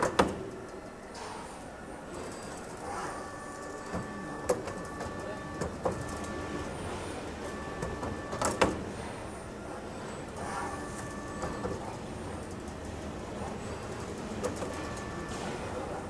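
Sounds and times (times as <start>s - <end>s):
machine motor whine: 2.1s - 16.0s.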